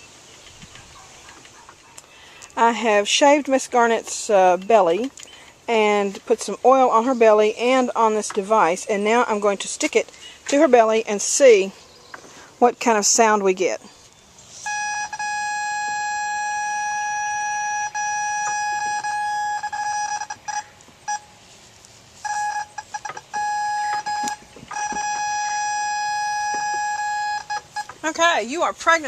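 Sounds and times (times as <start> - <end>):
steady electronic tone: 14.7 - 21.4, 22.2 - 27.9.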